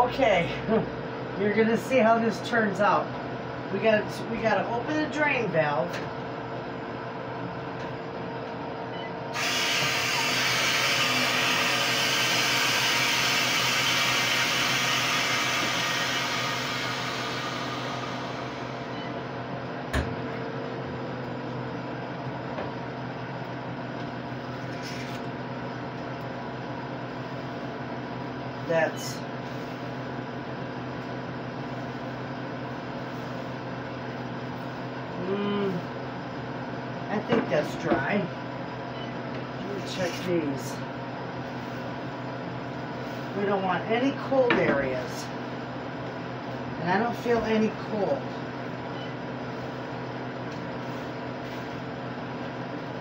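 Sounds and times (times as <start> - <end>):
machine humming: 0.0 - 53.0
air hissing into vacuum chamber: 9.3 - 18.9.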